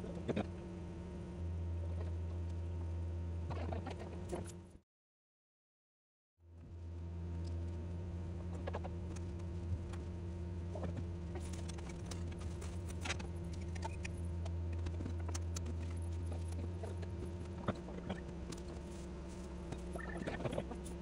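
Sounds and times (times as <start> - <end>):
appliance motor humming: 6.6 - 21.0.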